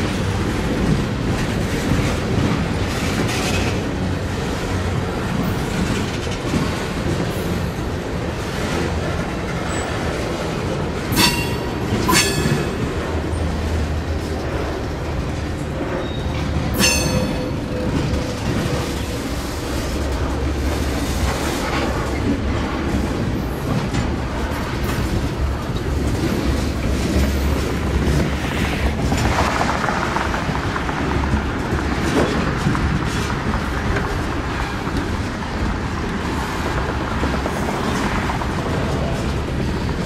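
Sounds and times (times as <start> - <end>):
train wheels rumbling on rail: 0.0 - 40.0
wheels clicking over rail joints: 0.0 - 40.0
high wheel squeal: 15.9 - 17.8.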